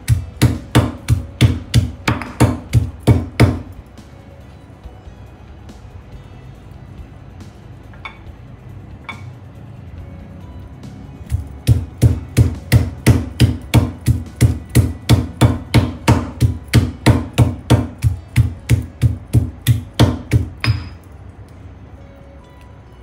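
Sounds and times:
stone pestle pounding in mortar: 0.0s - 3.8s, 11.2s - 21.0s.

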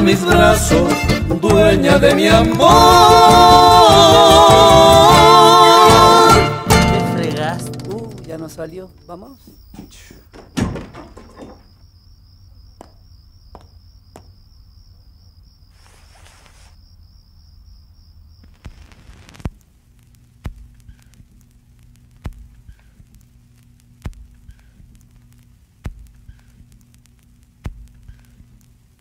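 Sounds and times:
cricket chirring: 7.4s - 29.0s
short rustle: 15.7s - 16.8s
low hum: 17.6s - 29.0s
sharp clicks: 18.4s - 29.0s.

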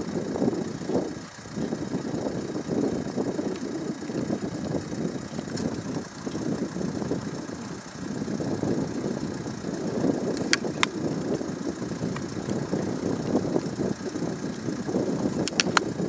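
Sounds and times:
sharp click: 10.3s - 11.0s, 15.4s - 15.9s.

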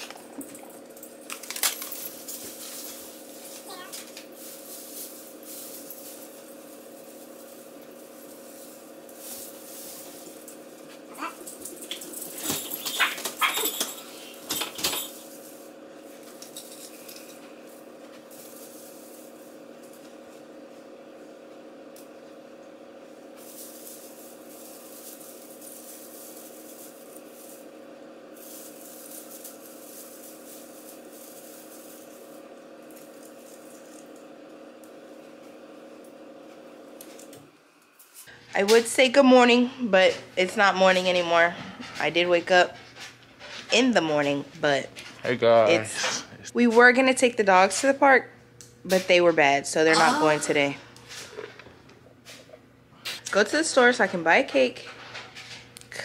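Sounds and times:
low household hum: 0.0s - 56.0s
dog barking: 12.9s - 13.8s.

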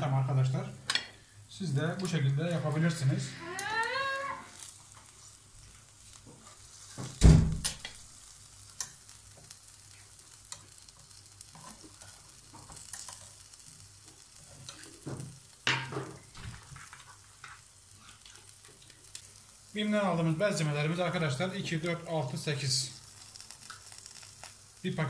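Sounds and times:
meat sizzling on a grill: 0.0s - 25.0s
loud thump: 7.2s - 7.8s.

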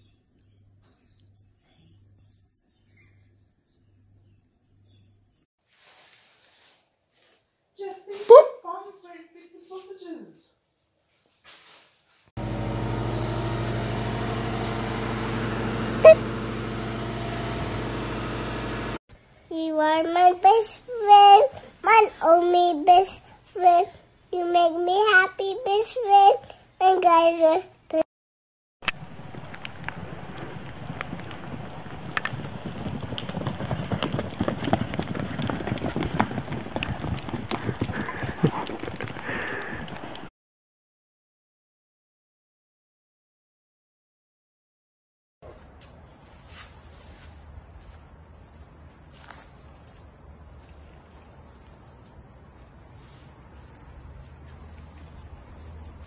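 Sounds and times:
car engine idling: 12.4s - 19.0s
hooves clattering on ground: 29.0s - 40.3s, 45.5s - 56.0s.

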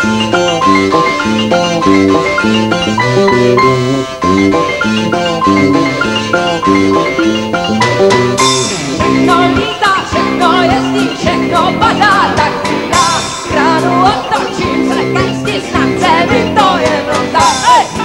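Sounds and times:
tuned melody: 0.0s - 18.0s
high wavering lead line: 1.0s - 18.0s
drum kit with cymbals: 4.8s - 18.0s.

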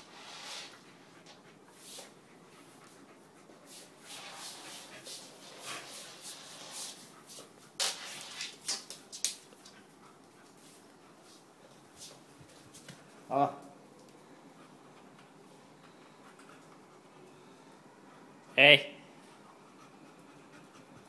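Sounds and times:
scuffling and rustling on floor: 3.6s - 9.8s, 10.4s - 13.2s.

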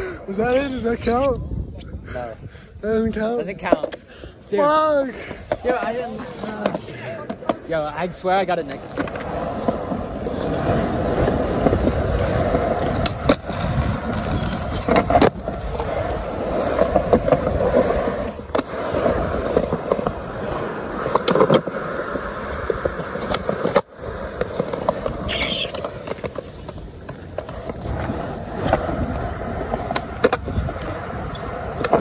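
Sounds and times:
skateboard wheels rolling on concrete: 0.0s - 32.0s
skateboard clacks: 5.4s - 32.0s.

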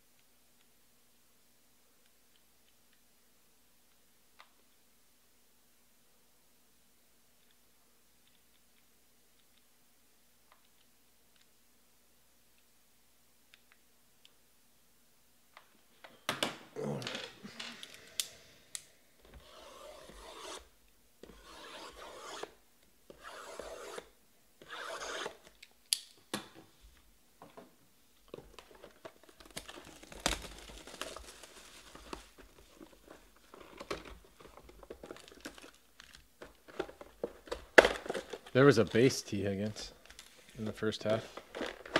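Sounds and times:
plastic wrap and cardboard rubbing: 29.1s - 35.8s.

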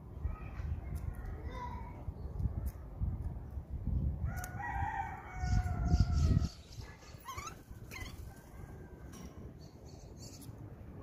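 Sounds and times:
birds calling: 5.3s - 10.7s.

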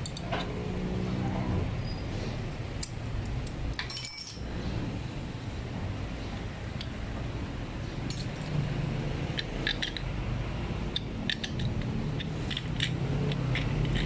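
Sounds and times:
metal tool clicking on metal: 9.4s - 10.1s, 10.9s - 14.0s.

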